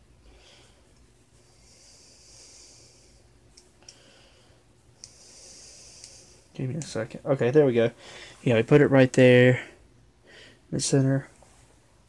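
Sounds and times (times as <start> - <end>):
faint breathing: 0.2 - 6.6, 7.9 - 8.5, 9.5 - 10.7.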